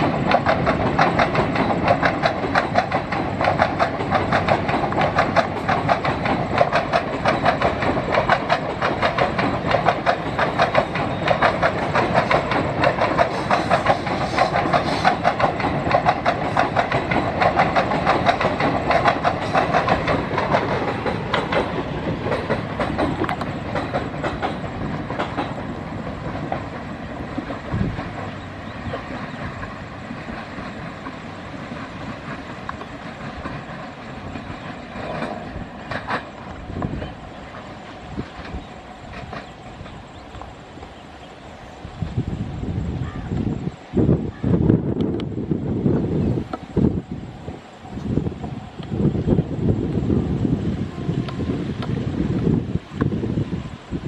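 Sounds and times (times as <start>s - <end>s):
train wheels clattering over rail joints: 0.0s - 41.4s.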